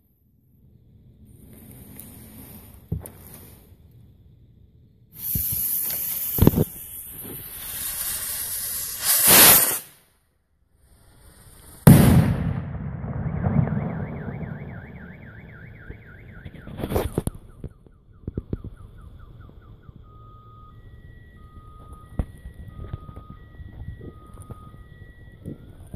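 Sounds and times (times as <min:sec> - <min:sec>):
fireworks hissing and popping: 0:01.3 - 0:03.8, 0:05.1 - 0:10.2, 0:10.8 - 0:12.3
loud firework bang: 0:11.9 - 0:15.0
car alarm warbling siren: 0:13.3 - 0:25.9.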